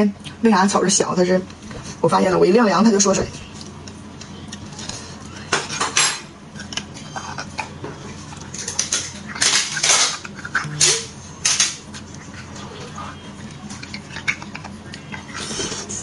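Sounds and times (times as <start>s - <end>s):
mouth sounds eating: 9.8s - 16.0s.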